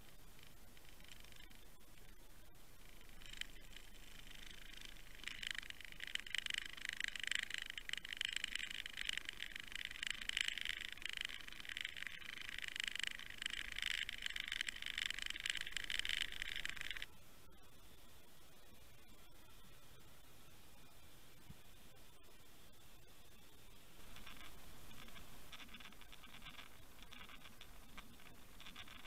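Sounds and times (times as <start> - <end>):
crackling hissing underwater noise: 0.0 - 17.1, 19.6 - 29.0.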